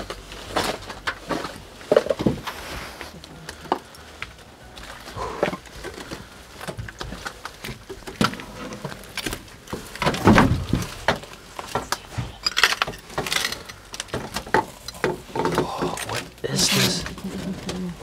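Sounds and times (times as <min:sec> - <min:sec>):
clothing brushing walls: 0:00.0 - 0:03.3
rustling and scraping in leaves: 0:00.0 - 0:18.0
knocks and clinks of gear: 0:03.2 - 0:18.0.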